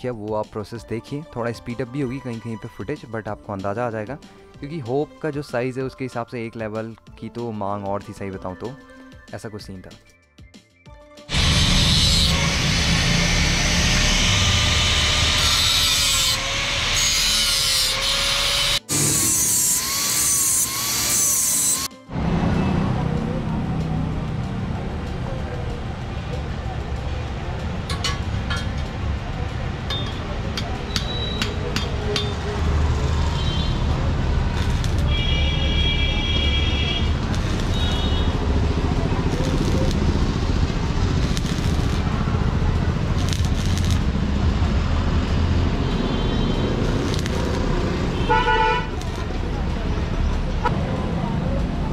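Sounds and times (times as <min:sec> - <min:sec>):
angle grinder grinding steel: 0:11.3 - 0:21.9, 0:32.2 - 0:35.6, 0:36.4 - 0:44.1, 0:46.7 - 0:49.4
low mechanical rumble: 0:36.5 - 0:45.8.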